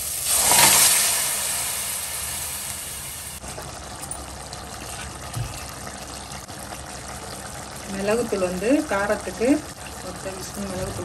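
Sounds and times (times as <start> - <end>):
stock hissing and bubbling: 0.0 - 3.6.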